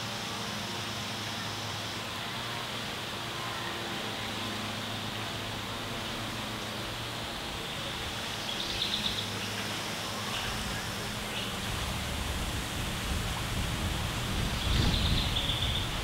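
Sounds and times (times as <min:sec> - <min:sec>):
outdoor ambient wash: 0:00.0 - 0:16.0.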